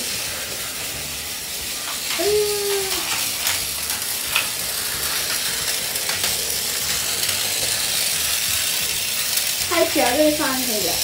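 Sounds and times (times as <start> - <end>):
toy train gear whir: 0.0 - 11.0
wheels clicking over track joints: 1.8 - 11.0
person humming: 2.2 - 3.1.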